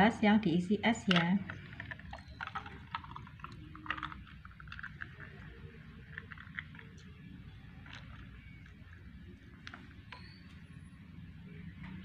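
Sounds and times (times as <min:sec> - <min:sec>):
ice cubes crackling: 0:01.1 - 0:10.0
liquid pouring: 0:01.1 - 0:10.0.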